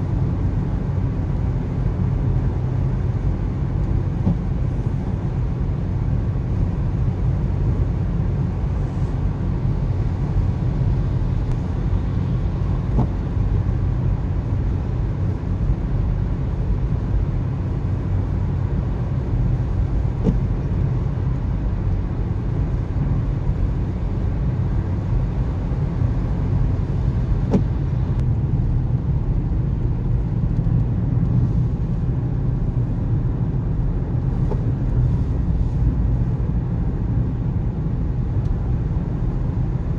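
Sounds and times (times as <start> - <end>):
car road and engine noise: 0.0 - 39.9
windscreen wiper tick: 3.7 - 5.4, 10.1 - 13.7, 19.0 - 21.2, 25.2 - 32.8, 34.2 - 36.0, 38.3 - 38.7.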